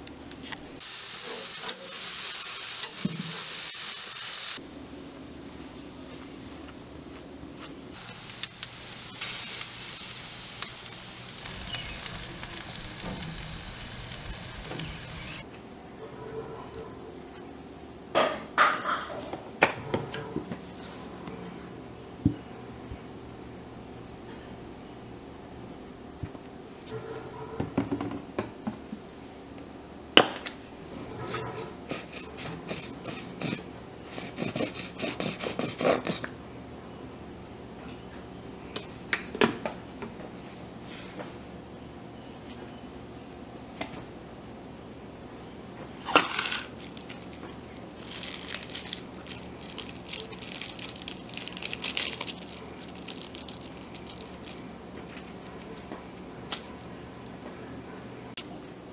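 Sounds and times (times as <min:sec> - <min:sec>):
burgers sizzling on a grill: 0:00.8 - 0:04.6, 0:08.0 - 0:15.4.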